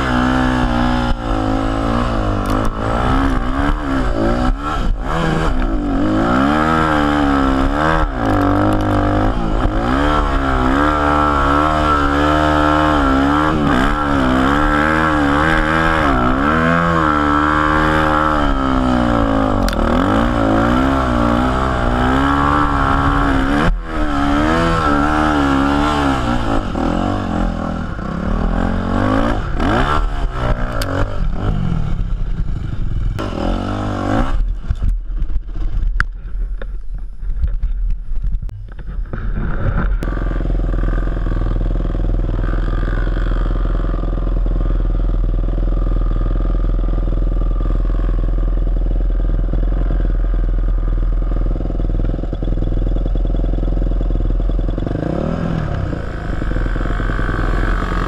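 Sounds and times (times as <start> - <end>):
dirt bike engine revving: 0.0 - 36.3, 38.7 - 58.0.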